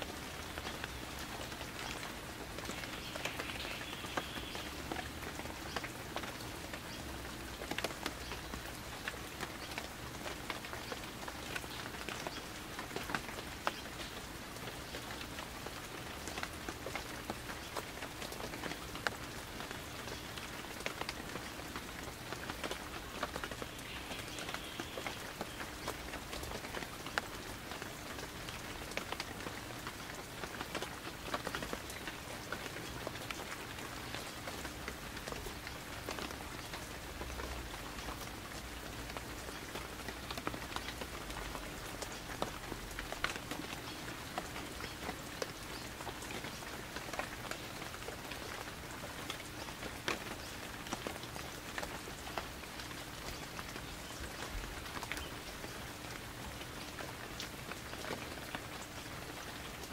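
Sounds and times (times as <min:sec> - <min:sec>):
raindrops tapping on surfaces: 0:00.0 - 0:59.9
steady rain falling: 0:00.0 - 0:59.9.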